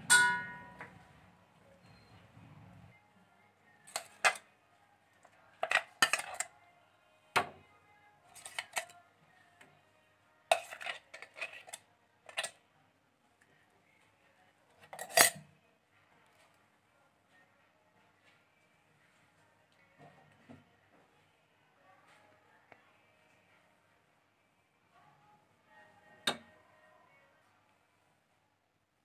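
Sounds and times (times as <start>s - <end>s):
utensil clinking against bowl: 0.0s - 0.9s, 5.6s - 6.5s, 10.5s - 12.5s, 14.9s - 15.4s.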